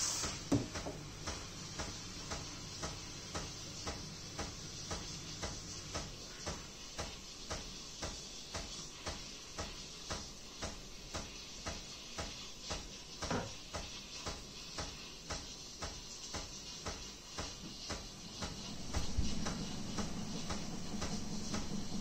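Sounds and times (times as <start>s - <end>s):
music with ticking beat: 13.7s - 22.0s.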